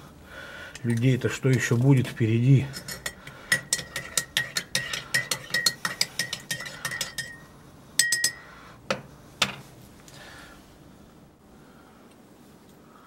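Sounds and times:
teaspoon clinking in a mug: 0:02.7 - 0:08.4.

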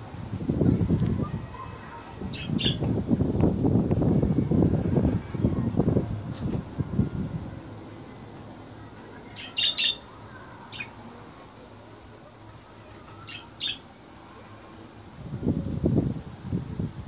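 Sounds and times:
budgerigars chirping: 0:02.3 - 0:02.8, 0:09.4 - 0:10.0, 0:10.7 - 0:10.9, 0:13.3 - 0:13.8.

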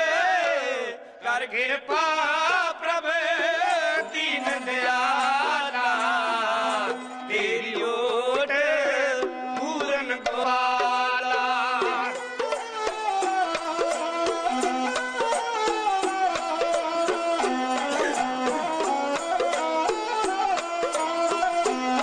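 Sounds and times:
men singing: 0:00.0 - 0:14.8, 0:15.9 - 0:22.0
bowed string instrument: 0:04.0 - 0:22.0
small hand drums tapped: 0:09.2 - 0:22.0.

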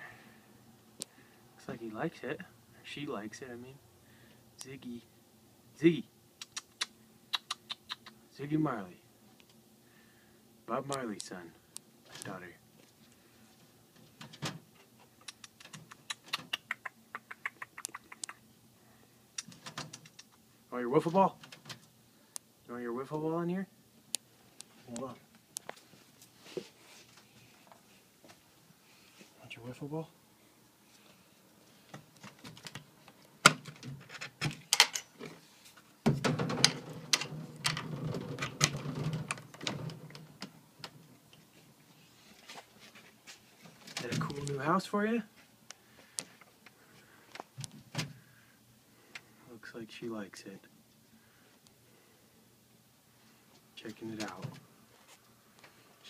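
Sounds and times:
wood and wire mesh rattling: 0:36.1 - 0:41.1.

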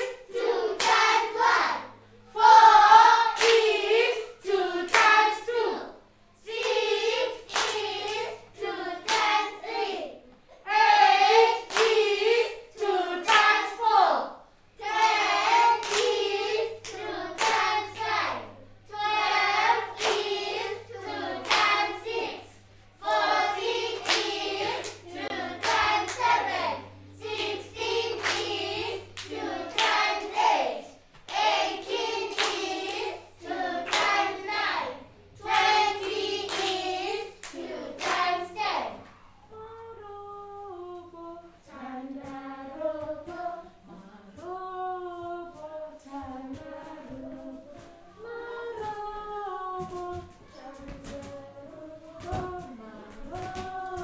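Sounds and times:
children singing in unison: 0:00.0 - 0:54.0
hands clapping in rhythm: 0:00.7 - 0:01.5, 0:02.9 - 0:05.6, 0:06.5 - 0:08.4, 0:09.0 - 0:09.7, 0:11.2 - 0:12.5, 0:13.2 - 0:13.9, 0:14.8 - 0:18.2, 0:19.5 - 0:22.2, 0:23.0 - 0:26.6, 0:27.2 - 0:30.5, 0:31.2 - 0:34.8, 0:35.4 - 0:38.7
woman singing alone: 0:42.9 - 0:54.0.

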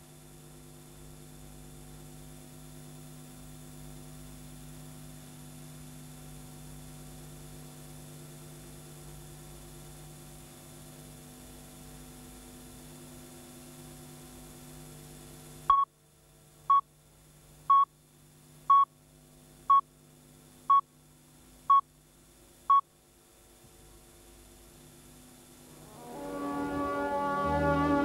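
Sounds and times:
steady electrical hum: 0:00.0 - 0:28.0
music: 0:25.7 - 0:28.0.

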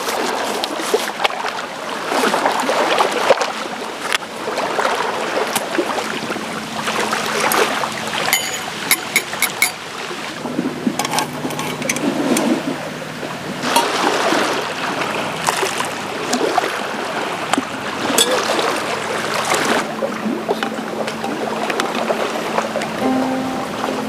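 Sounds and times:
lake waves lapping: 0:00.0 - 0:24.0
light metal clinks: 0:08.3 - 0:09.8.

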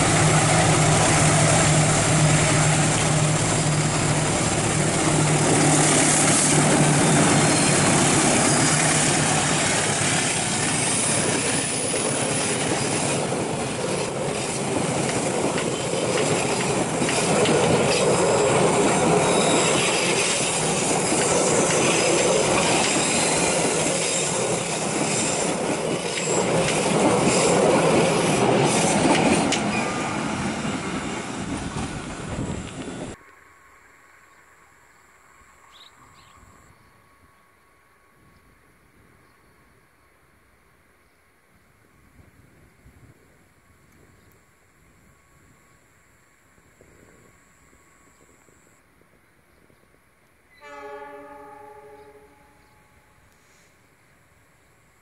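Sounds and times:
train wheels clicking: 0:00.0 - 0:33.2
train wheels rumbling on rail: 0:00.0 - 0:33.2
diesel locomotive engine humming: 0:00.0 - 0:35.7.

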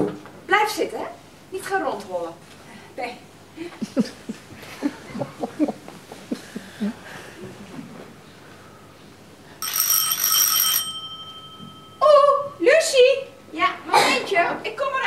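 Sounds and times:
electric doorbell ringing: 0:09.6 - 0:12.7.

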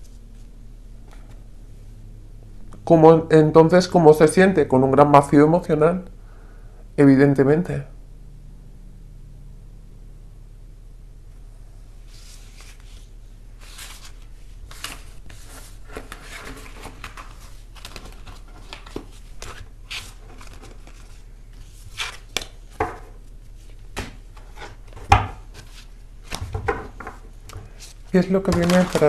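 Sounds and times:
cards shuffling: 0:12.1 - 0:29.0.

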